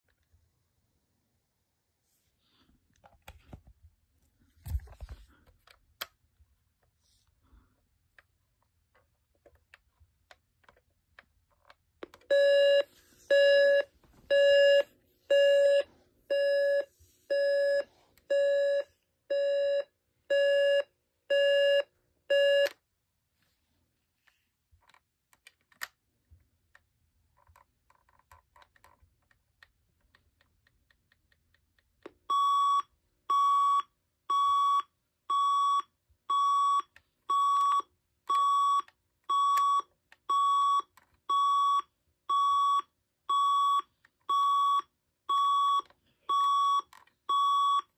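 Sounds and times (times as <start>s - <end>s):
alarm clock beeping: 12.3s - 22.8s, 32.3s - 47.9s.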